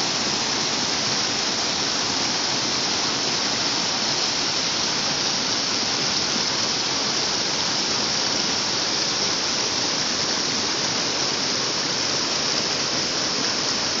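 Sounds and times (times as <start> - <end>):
water rushing over rocks: 0.0 - 14.0.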